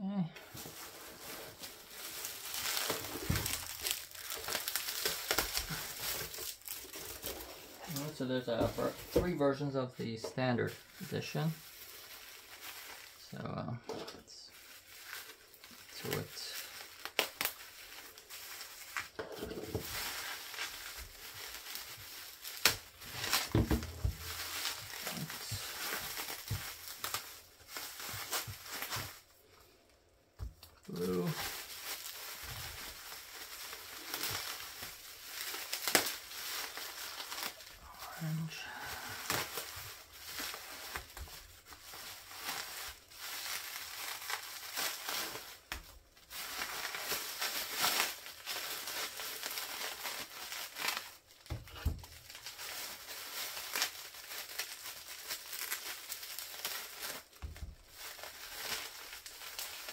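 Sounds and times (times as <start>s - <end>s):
bubble wrap crinkling: 0.1s - 59.9s.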